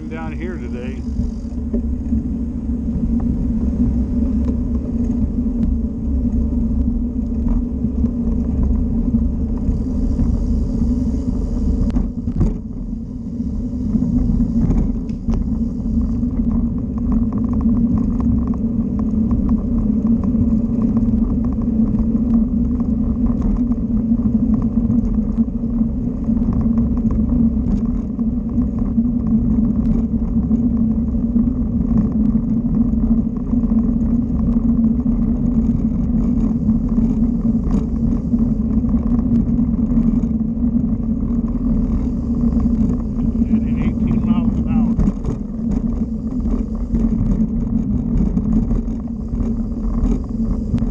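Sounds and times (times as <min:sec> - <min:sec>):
wind buffeting microphone: 0:00.0 - 0:50.9
tyre rumble on pavement: 0:13.8 - 0:50.9.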